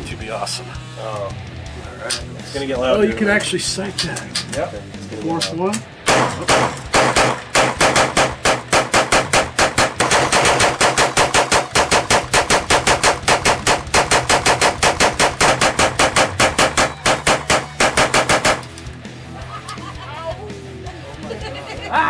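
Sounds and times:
gatling gun firing: 0:06.1 - 0:18.8.

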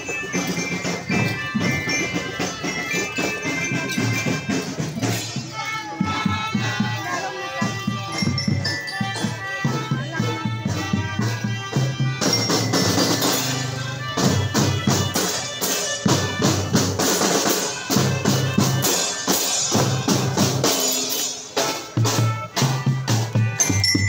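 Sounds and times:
glockenspiels chiming: 0:00.0 - 0:04.8, 0:08.1 - 0:09.4, 0:12.2 - 0:13.4, 0:23.5 - 0:24.0
melodica tune: 0:00.0 - 0:20.4, 0:21.5 - 0:24.0
snare and bass drums: 0:00.0 - 0:24.0.

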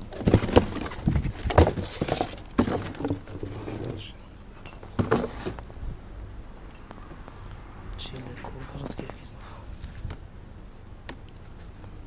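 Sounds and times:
cardboard boxes knocking: 0:00.0 - 0:03.6, 0:05.0 - 0:05.6
cardboard boxes rustling: 0:00.0 - 0:04.2, 0:04.8 - 0:05.8.

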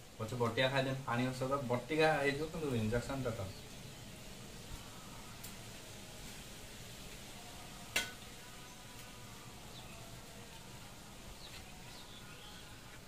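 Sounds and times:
faint high chirps: 0:06.3 - 0:13.0.

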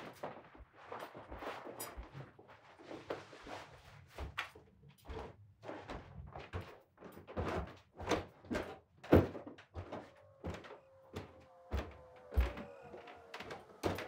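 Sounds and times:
footsteps on wooden stairs: 0:04.2 - 0:14.0.

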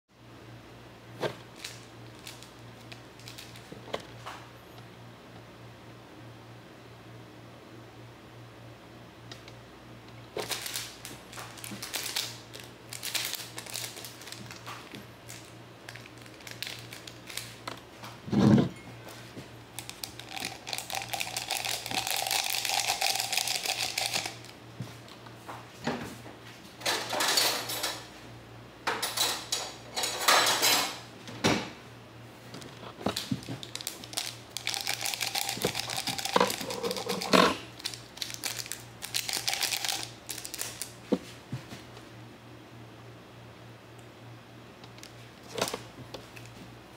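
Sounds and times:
sachet crinkling: 0:01.5 - 0:03.8, 0:10.4 - 0:17.7, 0:19.7 - 0:24.6, 0:33.0 - 0:41.0.

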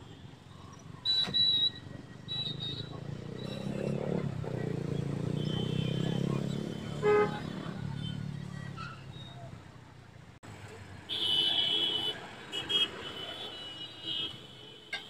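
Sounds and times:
vehicle engines rumbling: 0:00.0 - 0:15.0
car horn toot: 0:05.3 - 0:08.2.

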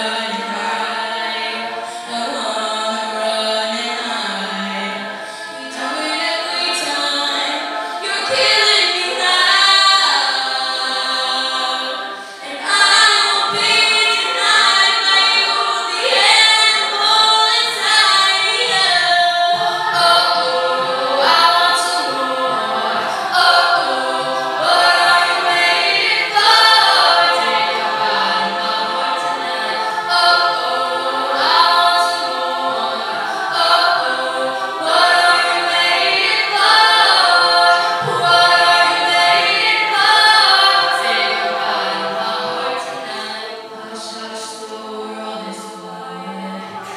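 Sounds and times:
a cappella group singing: 0:00.0 - 0:46.9
woman singing lead: 0:00.0 - 0:46.9.

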